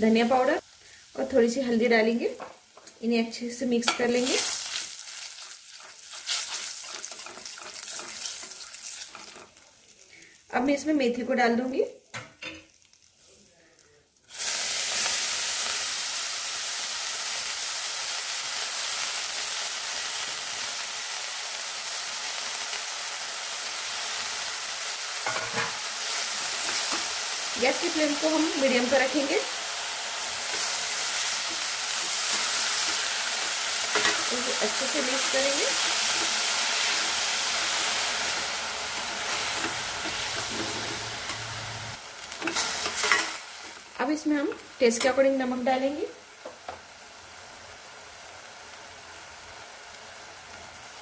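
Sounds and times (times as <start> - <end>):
leaves sizzling in hot oil: 0.0 - 51.0
ladle stirring in metal pan: 5.4 - 9.6, 30.4 - 34.4, 38.9 - 41.6, 42.4 - 43.4.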